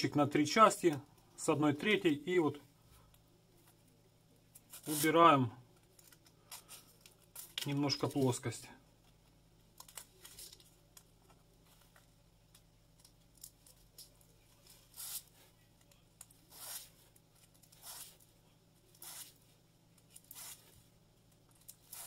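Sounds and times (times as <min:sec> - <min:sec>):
sandpaper scratching on plastic: 0:14.9 - 0:15.3, 0:16.5 - 0:16.9, 0:17.7 - 0:18.2, 0:19.0 - 0:19.4, 0:20.2 - 0:20.8.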